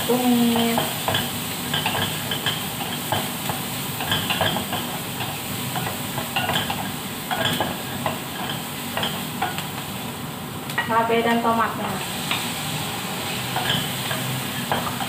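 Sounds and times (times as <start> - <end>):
onions sizzling in a frying pan: 0.0 - 15.0
spatula scraping a pan: 13.3 - 15.0.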